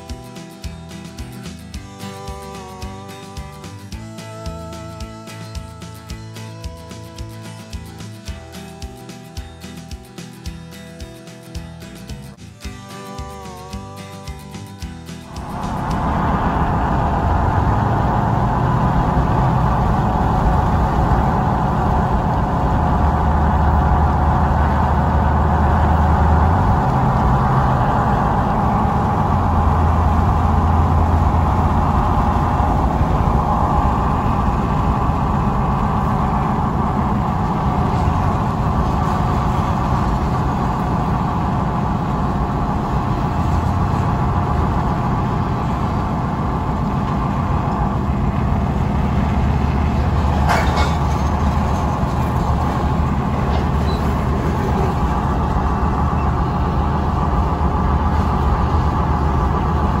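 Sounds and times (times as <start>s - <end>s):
truck driving rumble and road noise: 0.0s - 60.0s.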